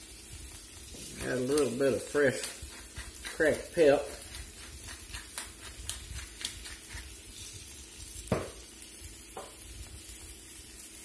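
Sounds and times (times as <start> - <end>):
soup hissing in pan: 0.0 - 11.0
knock: 8.3 - 8.6.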